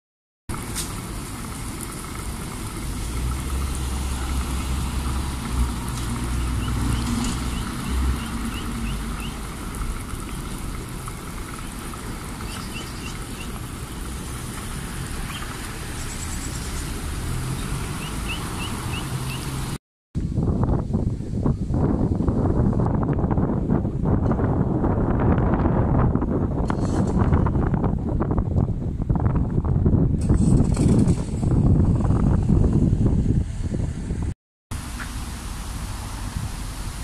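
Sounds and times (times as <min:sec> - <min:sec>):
fountain splashing: 0:00.5 - 0:19.8, 0:34.7 - 0:37.0
traffic rumble: 0:00.5 - 0:37.0
small bird chirping: 0:12.5 - 0:13.6.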